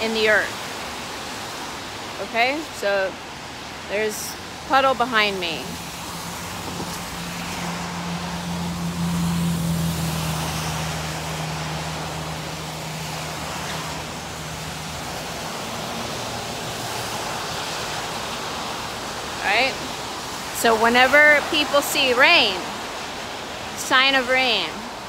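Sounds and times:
traffic hiss: 0.0s - 25.0s
vehicle engine hum: 3.9s - 25.0s.

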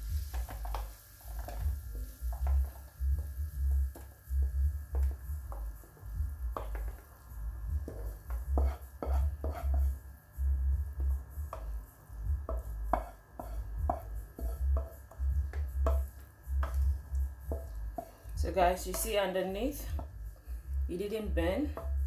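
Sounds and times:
wooden spoon scraping frying pan: 0.0s - 3.1s, 3.8s - 10.0s, 12.5s - 16.9s, 17.5s - 20.1s
dull low thumps: 1.6s - 8.6s, 10.4s - 12.9s, 19.9s - 22.0s.

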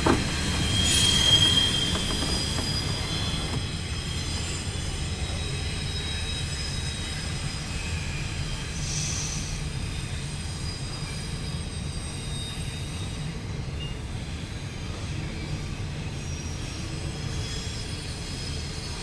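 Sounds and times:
high-pitched wheel squeal: 0.0s - 13.2s
train wheels rumbling on rail: 0.0s - 19.0s.

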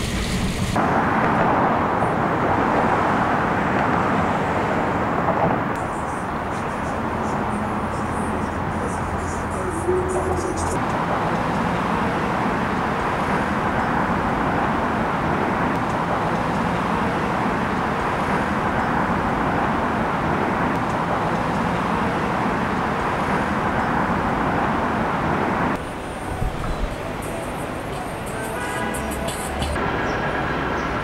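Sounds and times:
city traffic roar: 0.0s - 31.0s
quieter street sound: 0.0s - 31.0s.

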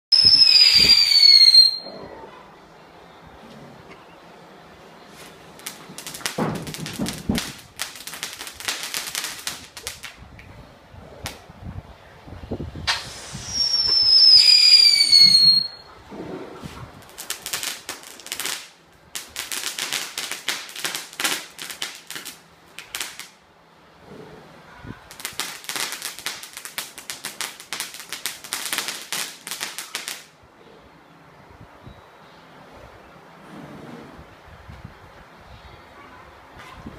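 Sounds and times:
firecracker crackling: 0.1s - 1.9s, 5.1s - 10.5s, 12.8s - 15.9s, 16.6s - 23.4s, 25.0s - 30.4s
firework whistle: 0.1s - 2.1s, 12.8s - 16.0s.

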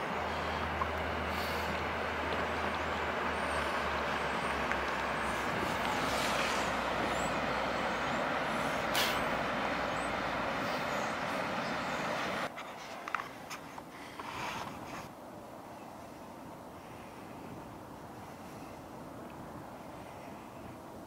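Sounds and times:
water rushing from boat wake: 0.0s - 12.5s
boat engine hum: 0.0s - 21.0s.

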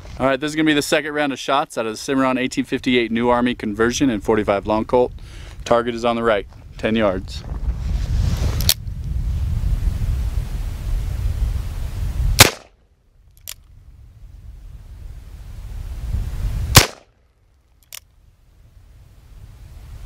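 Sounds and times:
wind on microphone: 2.6s - 12.6s, 13.6s - 17.0s, 18.3s - 20.0s
revolver gunshots: 12.4s - 12.7s, 16.7s - 17.1s.

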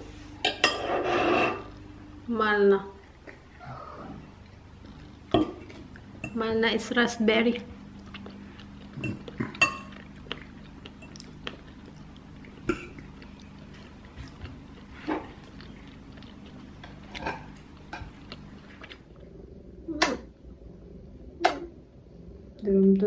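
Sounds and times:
low steady hum: 0.0s - 23.0s
soft chewing: 2.8s - 19.3s.

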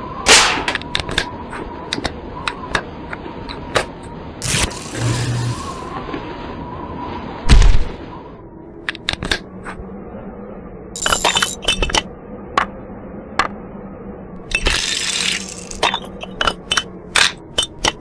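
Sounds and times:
rubble clinking and crumbling: 11.0s - 12.0s.

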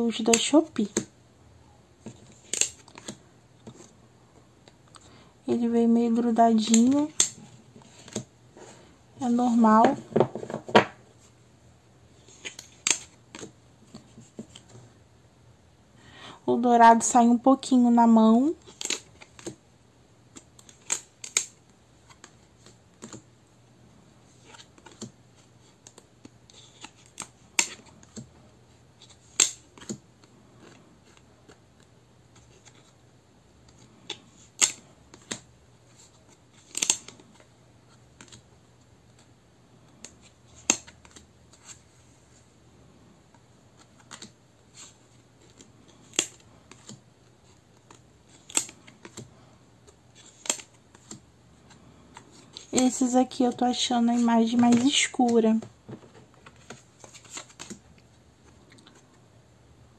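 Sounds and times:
cards clicking and snapping: 2.0s - 3.9s, 6.6s - 8.3s, 12.3s - 14.7s, 18.6s - 19.6s, 20.3s - 23.2s, 24.4s - 28.3s, 29.0s - 32.9s, 33.6s - 35.5s, 36.2s - 37.5s, 38.1s - 38.4s, 39.9s - 41.8s, 43.8s - 49.3s, 49.9s - 51.2s, 56.4s - 57.8s.

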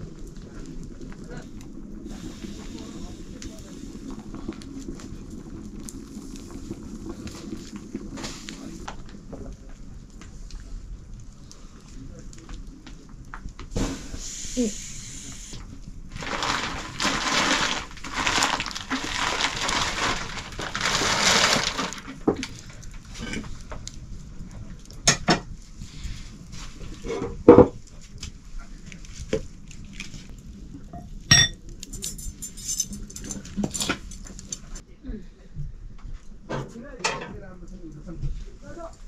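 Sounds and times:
pulsing rushing hiss: 13.8s - 15.6s
pots and utensils clinking: 31.0s - 34.7s.

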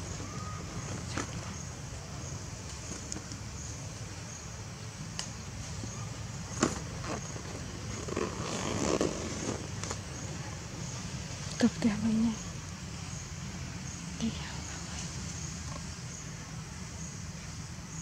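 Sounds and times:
faint high chirp: 0.1s - 1.6s.

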